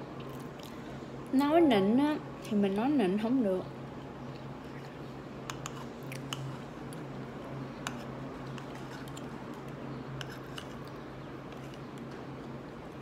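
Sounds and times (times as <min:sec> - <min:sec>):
steady low hum: 0:00.0 - 0:13.0
soft chewing: 0:00.2 - 0:00.9, 0:04.0 - 0:12.9.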